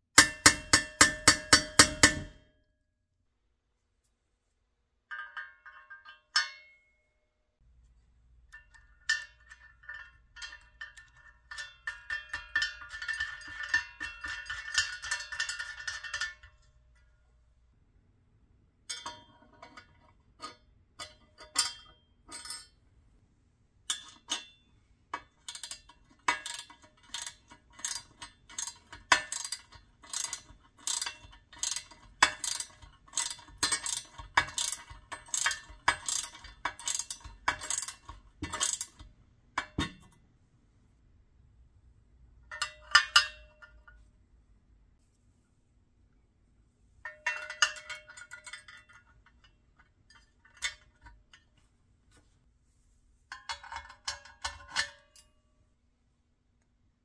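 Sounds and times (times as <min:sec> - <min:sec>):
metal parts clinking: 0:25.1 - 0:39.1, 0:47.1 - 0:51.4
ratchet wrench clicking: 0:25.4 - 0:39.1.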